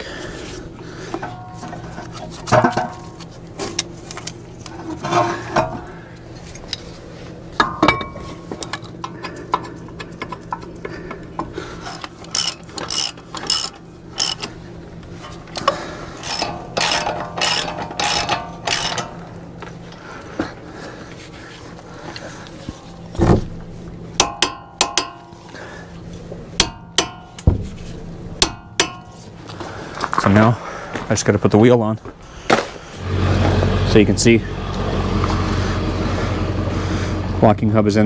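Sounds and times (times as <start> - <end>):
hand ratchet clicking: 11.9 - 14.5, 15.6 - 19.2.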